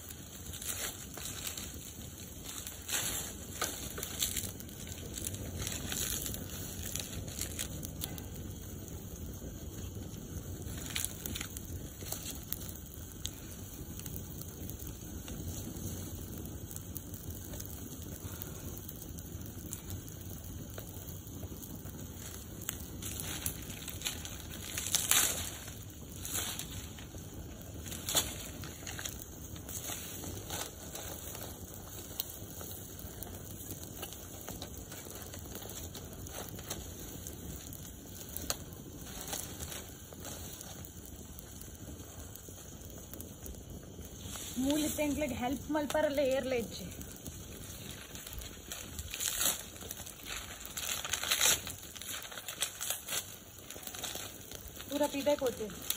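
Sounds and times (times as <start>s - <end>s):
low rush of flame: 0.0s - 55.9s
wood fire crackling: 0.0s - 55.9s
dry stalks snapping: 0.4s - 8.2s, 10.7s - 12.7s, 22.2s - 32.3s, 47.1s - 55.9s.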